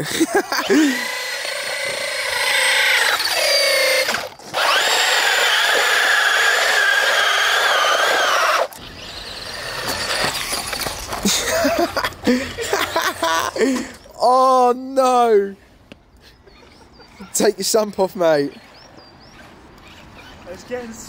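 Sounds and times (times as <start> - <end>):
electric motor whining: 0.5 - 11.2.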